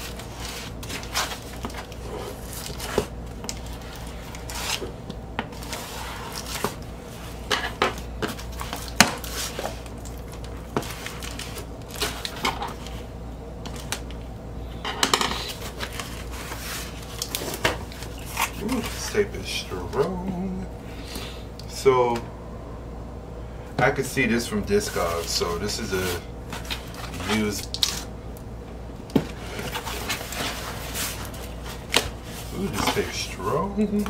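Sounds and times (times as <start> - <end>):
packing tape crackling: 0.0 - 4.9, 7.9 - 13.0, 15.4 - 19.1, 26.5 - 28.4
cardboard and tape rustling: 0.0 - 14.2, 15.0 - 20.5, 24.8 - 28.1, 29.1 - 34.0.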